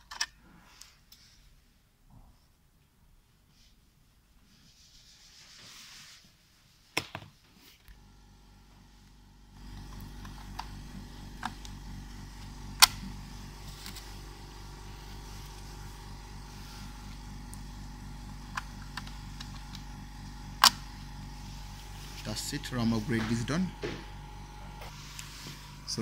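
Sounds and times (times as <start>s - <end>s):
low pulsing mechanical drone: 8.0s - 26.0s.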